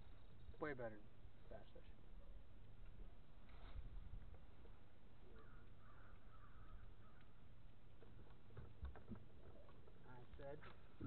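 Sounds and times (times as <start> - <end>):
bird calling faintly: 4.7 - 7.6.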